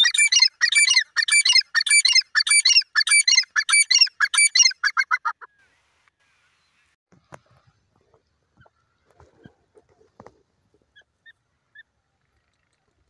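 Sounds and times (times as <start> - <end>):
bird calling high-pitched: 0.0 - 5.8.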